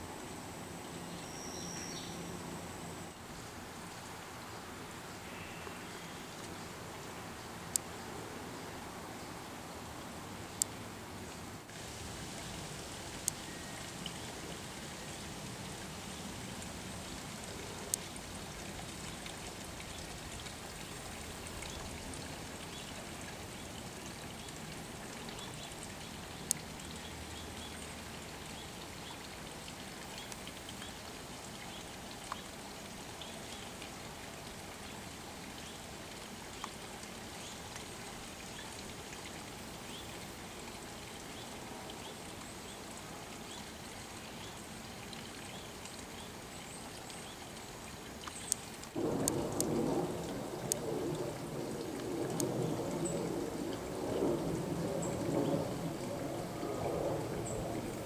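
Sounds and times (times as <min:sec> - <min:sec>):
steady hissing background noise: 0:00.0 - 0:58.0
faint high chirps: 0:13.4 - 0:13.8.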